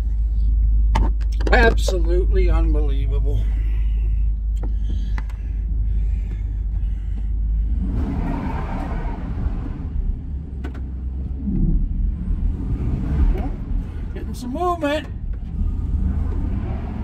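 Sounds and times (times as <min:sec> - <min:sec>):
van engine running under throttle: 0:00.0 - 0:17.0
tyres spinning in mud: 0:07.7 - 0:17.0.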